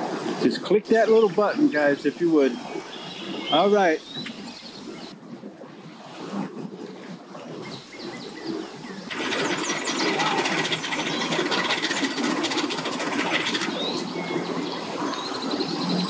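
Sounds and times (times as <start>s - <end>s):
birds chirping: 0.9s - 5.2s, 7.6s - 16.0s
engine buzzing: 9.0s - 16.0s.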